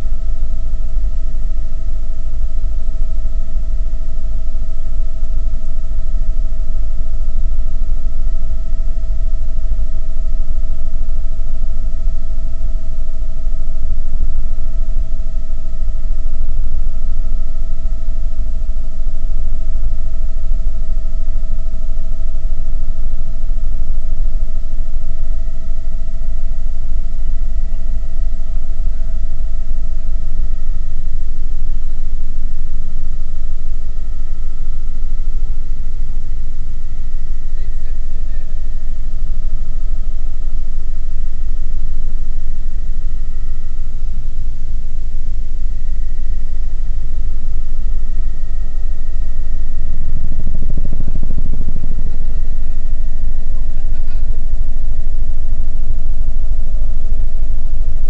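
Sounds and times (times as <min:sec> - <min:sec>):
high whine: 0:00.0 - 0:58.0
helicopter rotor and engine rumble: 0:07.1 - 0:58.0.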